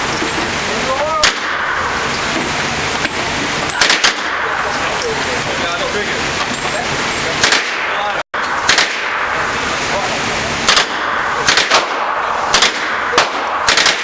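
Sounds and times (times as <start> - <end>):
steady background noise: 0.0 - 14.0
gunshots indoors: 3.7 - 4.6, 7.4 - 9.7, 10.6 - 14.0.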